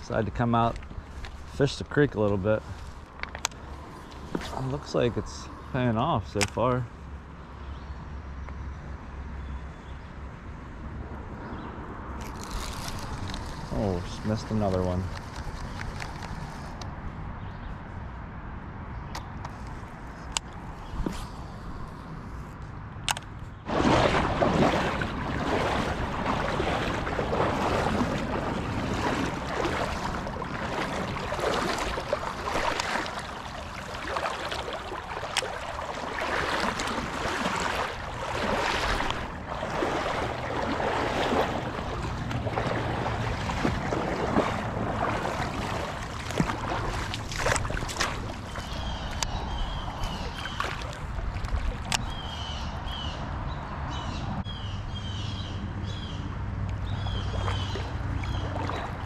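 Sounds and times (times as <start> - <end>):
creek water sloshing and splashing: 0.0 - 7.1, 11.7 - 16.8, 23.5 - 53.1, 56.5 - 59.0
wind on microphone: 23.6 - 54.5.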